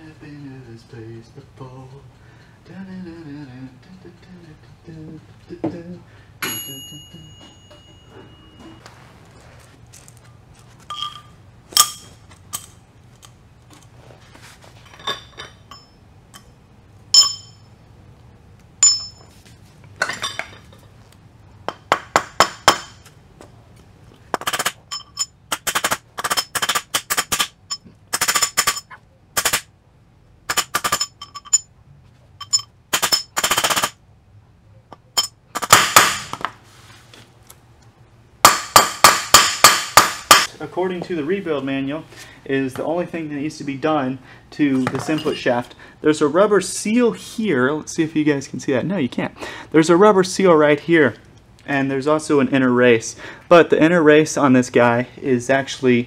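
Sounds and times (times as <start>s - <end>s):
metal clinks: 6.4s - 8.8s, 10.8s - 12.8s, 14.8s - 17.8s, 18.8s - 19.4s, 20.0s - 20.9s, 24.4s - 29.0s, 30.5s - 31.7s, 32.4s - 34.0s, 34.9s - 35.7s.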